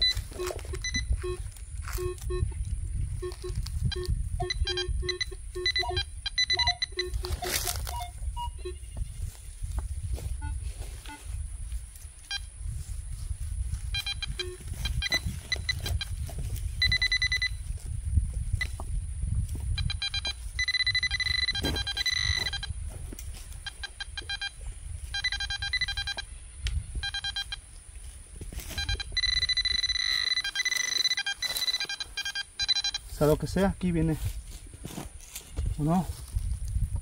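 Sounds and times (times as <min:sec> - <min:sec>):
metal detector beeps: 0:00.0 - 0:09.2, 0:10.2 - 0:11.4, 0:12.2 - 0:12.6, 0:13.8 - 0:17.8, 0:18.5 - 0:18.9, 0:19.5 - 0:22.8, 0:23.4 - 0:27.6, 0:28.5 - 0:33.6.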